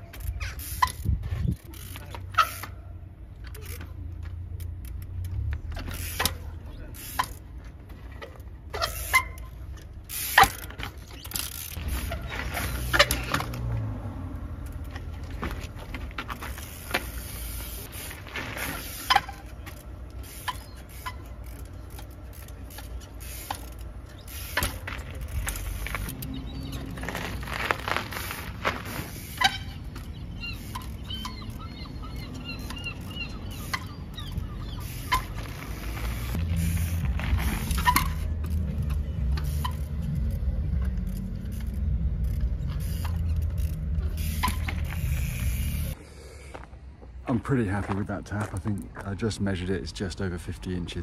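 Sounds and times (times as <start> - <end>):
steady low rumble: 35.4 - 47.5.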